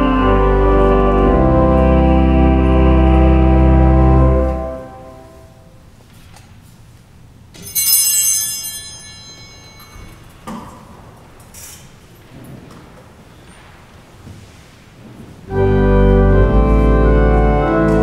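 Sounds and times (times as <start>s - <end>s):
church organ chord: 0.0s - 5.7s, 15.5s - 18.0s
small altar bell ringing: 7.6s - 10.5s.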